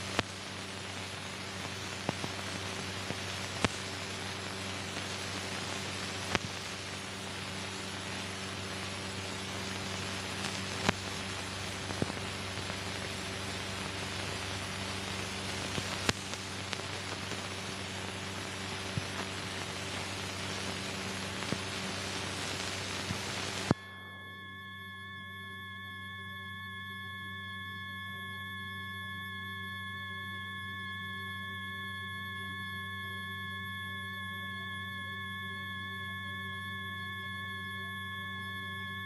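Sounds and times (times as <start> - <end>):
film soundtrack hiss and hum: 0.0 - 23.8
faint steady tones: 0.0 - 39.0.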